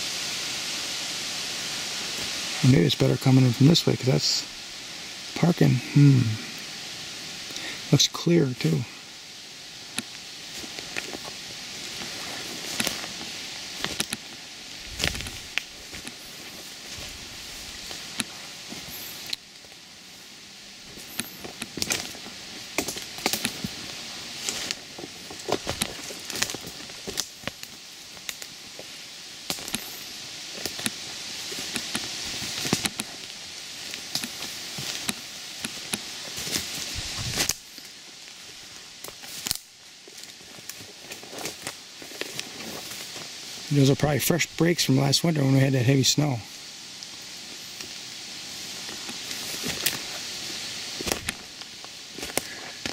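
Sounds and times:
leaves and brush rustling: 0.0 - 52.9
footsteps through undergrowth: 5.4 - 52.9
dry twigs snapping: 9.8 - 19.8, 20.9 - 38.4, 39.0 - 43.4, 48.7 - 52.9.

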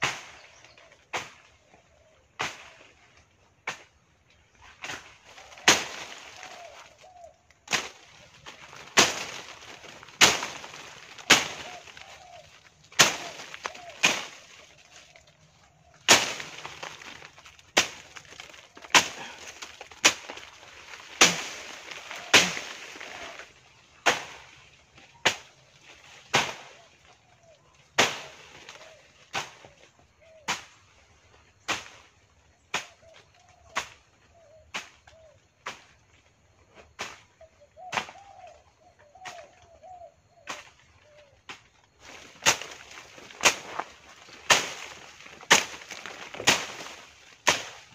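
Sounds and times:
leaves and twigs rustling: 0.0 - 47.9
machete chopping brush: 1.1 - 1.5, 2.4 - 2.8, 4.8 - 6.3, 7.7 - 12.2, 12.9 - 15.0, 16.0 - 23.4, 24.0 - 24.5, 26.3 - 26.8, 28.0 - 29.7, 30.5 - 30.8, 31.6 - 32.1, 34.7 - 35.9, 37.9 - 38.3, 41.5 - 47.9.

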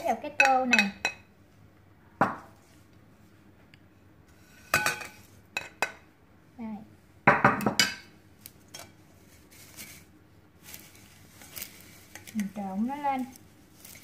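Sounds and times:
dishes clinking against bowl: 0.3 - 1.3, 4.6 - 6.0
fried food rustling: 8.2 - 14.0.

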